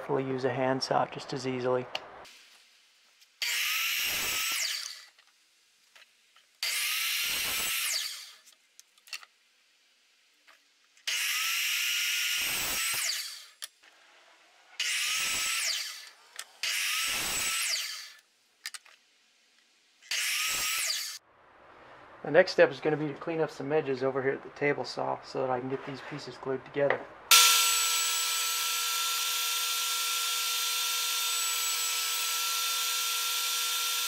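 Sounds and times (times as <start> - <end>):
miter saw cutting wood: 3.4 - 5.1, 6.6 - 8.4, 11.1 - 13.6, 14.8 - 18.2, 20.0 - 21.2, 27.3 - 34.0.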